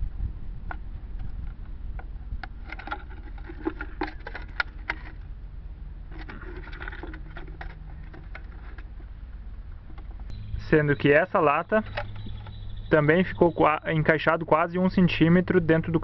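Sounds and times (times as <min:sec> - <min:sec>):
low steady background rumble: 0:00.0 - 0:16.0
aluminium cans crinkling and scraping: 0:01.2 - 0:05.3, 0:06.0 - 0:09.2, 0:11.8 - 0:12.6.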